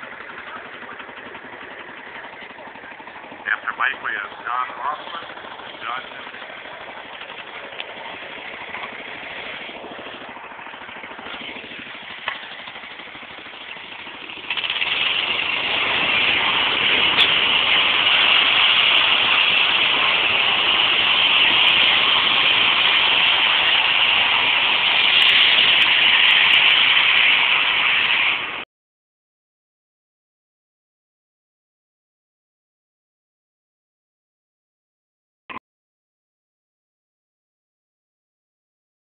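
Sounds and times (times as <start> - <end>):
tractor engine running hard: 0.0 - 28.6.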